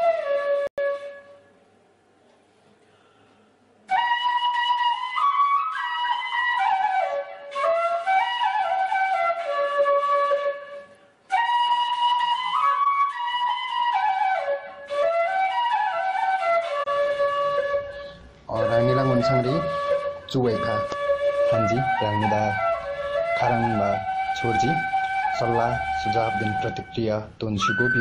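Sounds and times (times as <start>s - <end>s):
solo flute melody: 0.0s - 1.5s, 3.9s - 28.0s.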